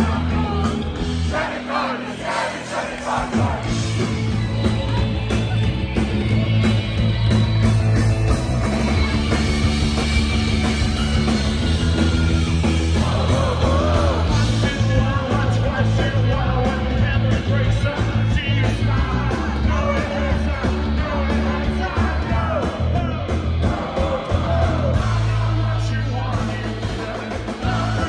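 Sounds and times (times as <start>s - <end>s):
rock band playing live: 0.0s - 28.0s
person singing: 12.9s - 28.0s.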